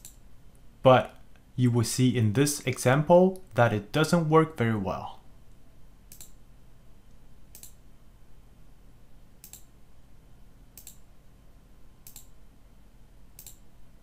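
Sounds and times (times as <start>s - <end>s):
faint low hum: 0.0s - 14.0s
computer mouse clicking: 6.1s - 6.4s, 7.5s - 7.8s, 9.4s - 9.7s, 10.8s - 11.0s, 12.0s - 12.4s, 13.4s - 13.6s.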